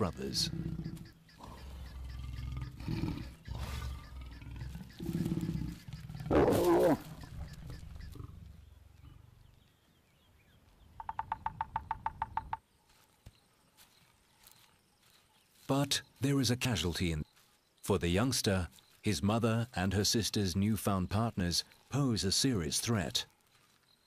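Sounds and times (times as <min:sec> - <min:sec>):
lions growling: 0:00.0 - 0:09.6
lion snarl: 0:00.3 - 0:09.3.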